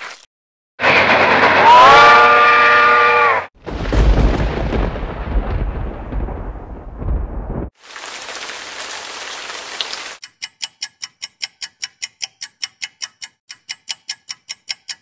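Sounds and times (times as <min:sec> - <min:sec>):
train running noise: 0:00.8 - 0:02.0
train horn: 0:01.6 - 0:03.5
deep thunder rumble: 0:03.6 - 0:07.8
rain hiss: 0:07.8 - 0:10.2.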